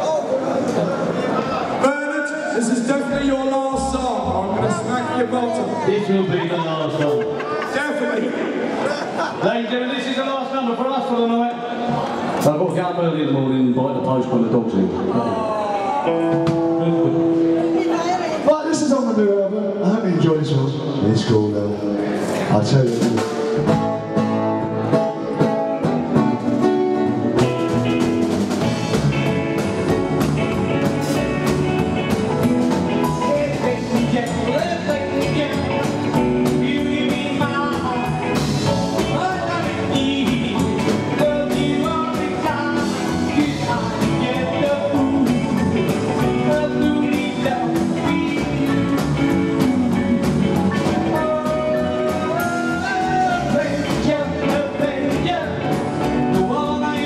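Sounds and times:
rockabilly band playing: 0.0s - 57.0s
man singing: 32.9s - 57.0s.

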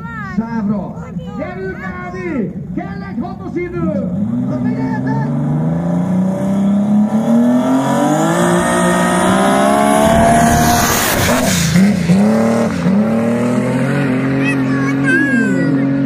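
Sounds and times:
dragster engine accelerating past: 4.3s - 15.0s.

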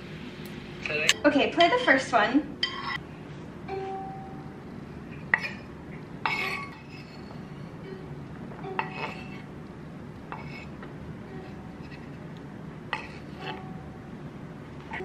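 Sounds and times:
knife scraping cutting board: 2.6s - 3.0s, 10.3s - 10.7s, 12.9s - 13.6s.

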